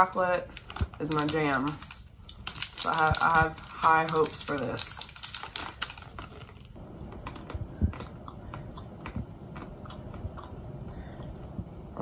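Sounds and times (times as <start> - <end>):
foil wrapper crinkling: 0.0 - 8.6
soft chewing: 6.1 - 11.7.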